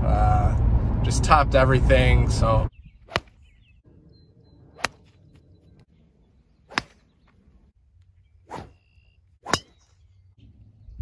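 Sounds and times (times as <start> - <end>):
golf club striking ball: 9.4 - 10.0.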